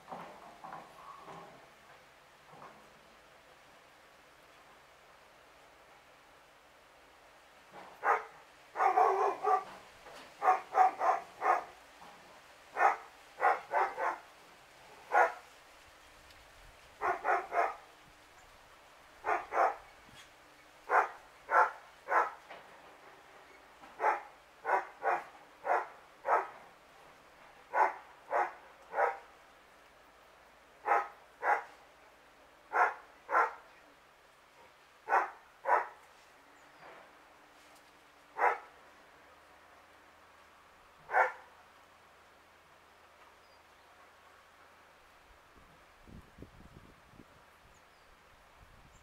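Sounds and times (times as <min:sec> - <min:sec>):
dog barking: 0:08.0 - 0:09.8, 0:10.4 - 0:11.8, 0:12.8 - 0:14.2, 0:15.1 - 0:15.4, 0:17.0 - 0:17.8, 0:19.2 - 0:19.8, 0:20.9 - 0:22.4, 0:24.0 - 0:26.6, 0:27.7 - 0:29.2, 0:30.8 - 0:31.7, 0:32.7 - 0:33.6, 0:35.1 - 0:36.0, 0:38.4 - 0:38.7, 0:41.1 - 0:41.5.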